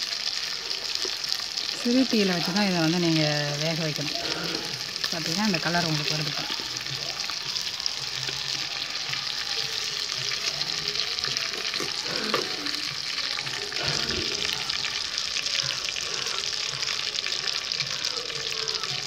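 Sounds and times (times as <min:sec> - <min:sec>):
chicken deep-frying in hot oil: 0:00.0 - 0:19.0.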